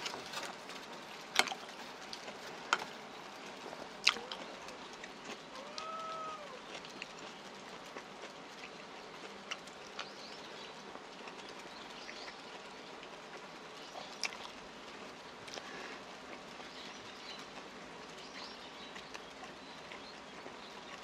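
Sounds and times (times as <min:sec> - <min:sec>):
person chewing food: 0:00.0 - 0:10.3, 0:10.9 - 0:14.6, 0:15.4 - 0:17.8.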